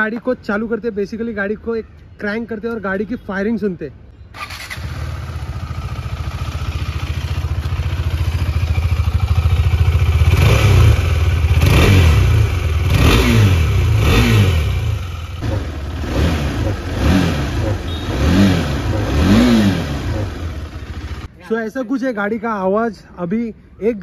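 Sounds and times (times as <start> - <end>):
motorcycle engine starting: 4.3 - 21.3
motorcycle engine idling: 4.4 - 21.3
motorcycle engine revving: 4.4 - 21.3.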